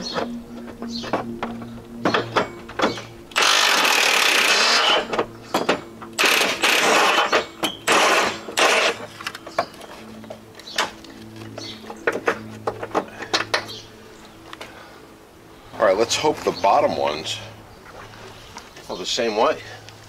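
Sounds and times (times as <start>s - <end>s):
impact wrench hammering: 2.0s - 9.1s.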